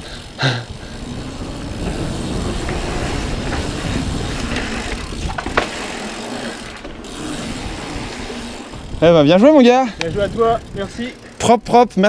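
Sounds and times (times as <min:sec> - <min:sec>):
bike tyres on tarmac: 0:00.0 - 0:12.0
wind on microphone: 0:01.0 - 0:05.7, 0:07.1 - 0:09.2, 0:09.9 - 0:11.1
sharp knocks from bike: 0:04.5 - 0:06.0.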